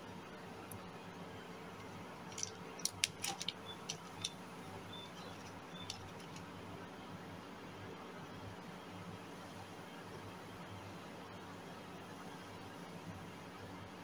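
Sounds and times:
steady low hum: 0.0s - 14.0s
fishing tackle clicks: 2.3s - 4.4s, 5.2s - 6.5s.

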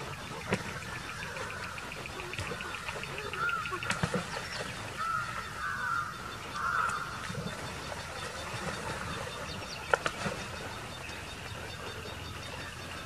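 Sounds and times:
wild dogs crying and calling: 0.0s - 7.3s, 10.7s - 13.0s.

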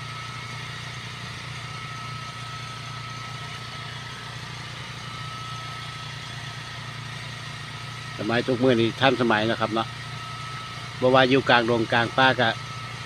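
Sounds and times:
generator engine droning: 0.0s - 13.0s
thin steady whine: 0.0s - 13.0s.

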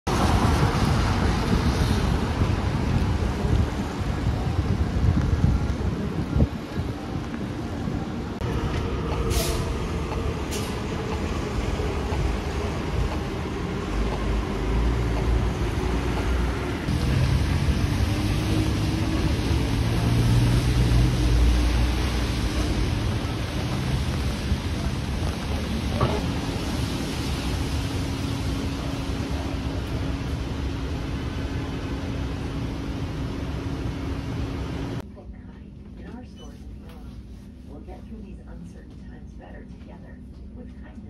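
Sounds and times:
traffic on wet pavement: 0.0s - 35.0s
low engine drone: 0.1s - 36.7s.

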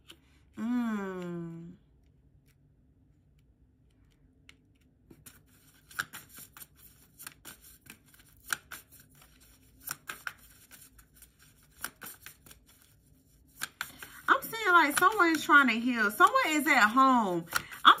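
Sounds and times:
cards shuffling: 4.0s - 18.0s
cards snapping: 4.4s - 12.9s, 13.5s - 15.4s, 17.4s - 17.8s.

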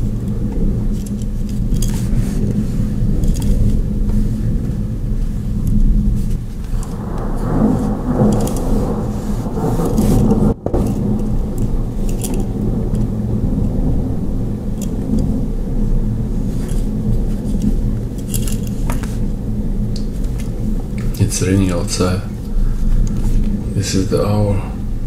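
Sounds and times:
low rumble: 0.0s - 25.0s
metallic clicks and jingles: 3.2s - 3.7s, 10.8s - 13.1s, 17.5s - 18.9s.

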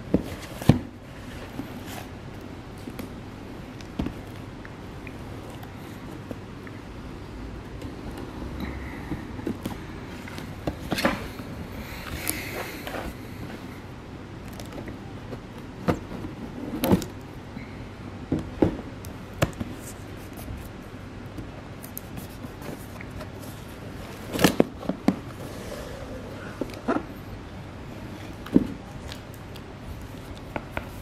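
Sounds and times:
low background hum: 0.0s - 31.0s.

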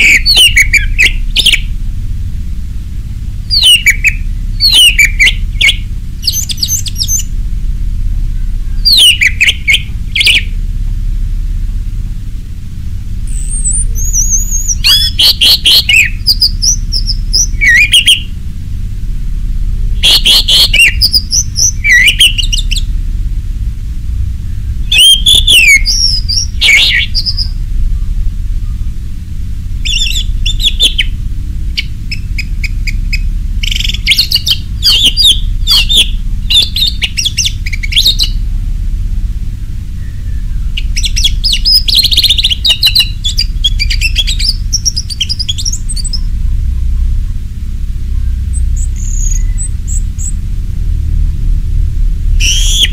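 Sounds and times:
low background noise: 0.0s - 52.9s
thrush singing: 20.0s - 22.9s, 24.8s - 28.9s.

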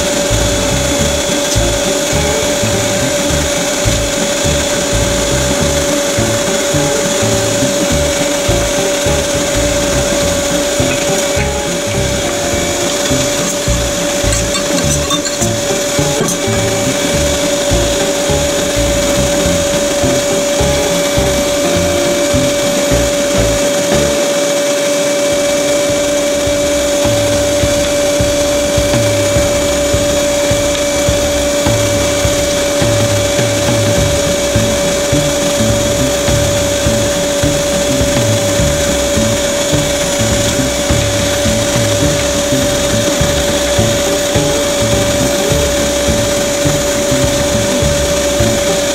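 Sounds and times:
electric meat grinder motor: 0.0s - 48.9s.

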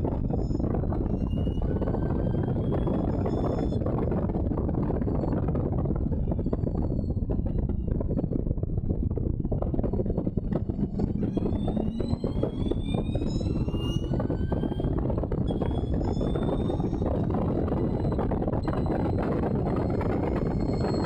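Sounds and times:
racing car engine: 9.4s - 21.0s.

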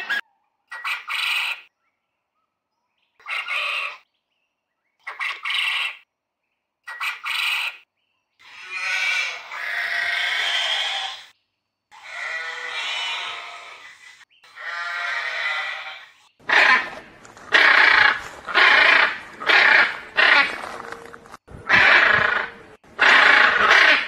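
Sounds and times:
quail calling: 0.0s - 1.7s, 3.2s - 4.0s, 5.0s - 6.0s, 6.9s - 7.8s, 12.0s - 24.0s.

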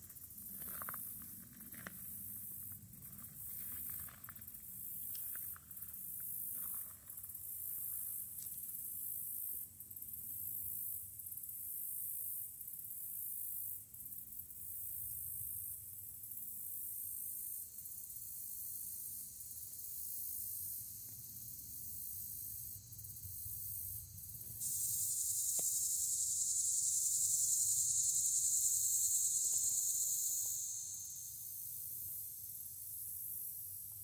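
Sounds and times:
high-pitched insect buzzing: 16.7s - 33.9s.

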